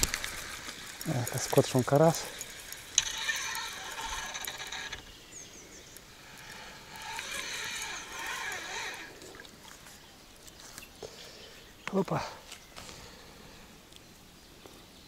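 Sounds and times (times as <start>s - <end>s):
fishing reel whirring: 0.0s - 9.8s.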